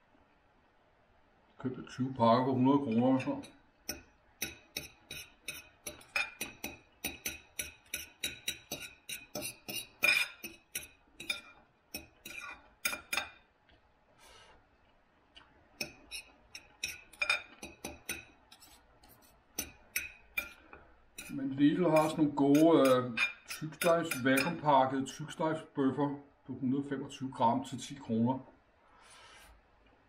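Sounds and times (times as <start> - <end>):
cutlery clinking and scraping on plate: 4.4 - 13.4, 15.8 - 20.6, 22.0 - 24.6.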